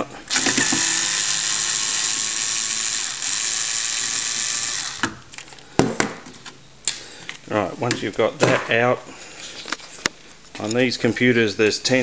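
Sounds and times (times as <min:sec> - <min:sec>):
electric screwdriver running: 0:00.3 - 0:05.2.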